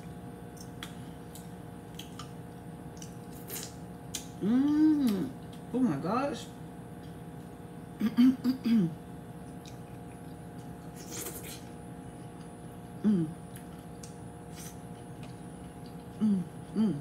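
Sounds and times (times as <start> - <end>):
person humming mm: 4.4 - 5.4, 13.0 - 13.4, 16.2 - 17.0.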